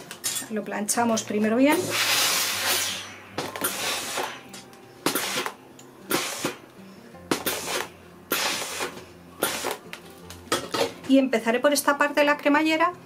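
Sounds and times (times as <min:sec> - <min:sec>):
steam iron hissing: 0:01.7 - 0:04.4, 0:05.1 - 0:06.6, 0:07.3 - 0:09.8.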